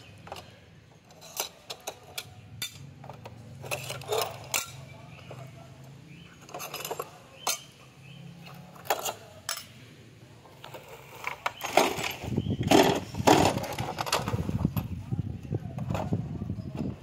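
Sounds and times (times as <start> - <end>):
handling noise: 10.4 - 17.0.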